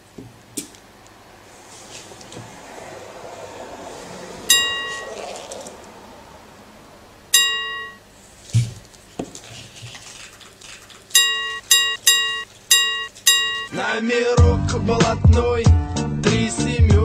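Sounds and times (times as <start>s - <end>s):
bell-like ding: 4.5s - 5.1s, 7.4s - 8.0s, 11.2s - 13.7s.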